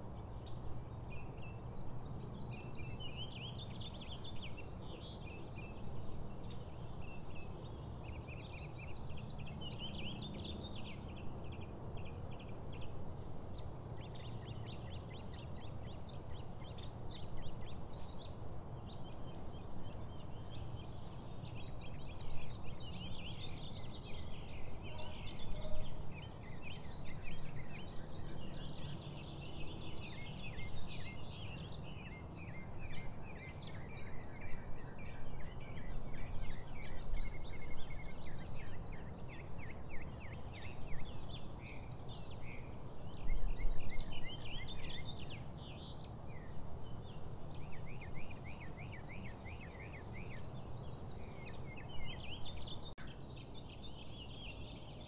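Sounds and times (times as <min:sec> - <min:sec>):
songbirds chirping and trilling: 0:00.0 - 0:55.0.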